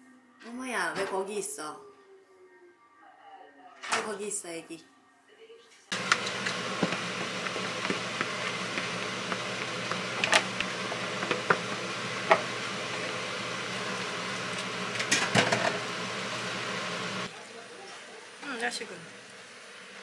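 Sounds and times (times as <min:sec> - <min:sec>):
stir-frying hiss: 0:05.9 - 0:20.0.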